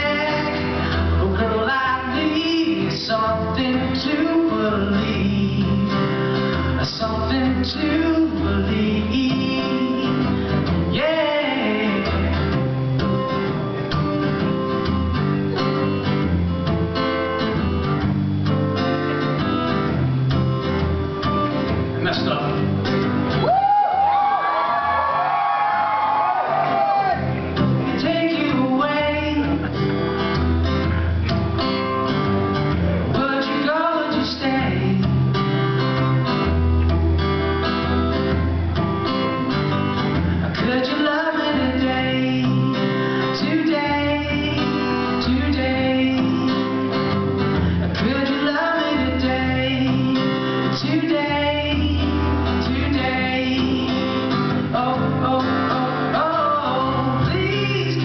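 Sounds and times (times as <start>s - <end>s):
man singing: 0.0s - 12.5s, 27.1s - 29.8s, 32.9s - 35.4s, 40.5s - 47.2s, 47.9s - 58.0s
acoustic guitar strumming: 0.0s - 58.0s.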